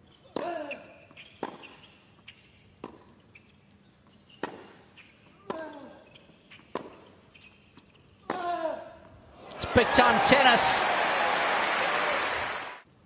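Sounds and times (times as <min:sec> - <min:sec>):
tennis ball bouncing: 0:01.4 - 0:01.8, 0:02.8 - 0:03.2, 0:06.7 - 0:07.0.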